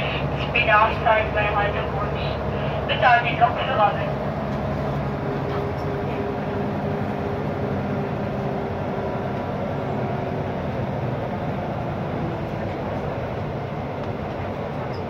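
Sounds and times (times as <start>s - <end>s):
diesel engine drone: 0.0s - 15.0s
train wheels rolling on track: 0.0s - 15.0s.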